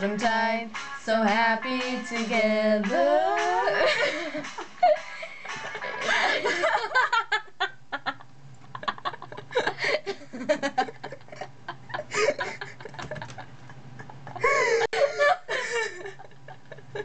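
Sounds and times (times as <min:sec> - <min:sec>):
girls giggling: 0:03.6 - 0:17.0.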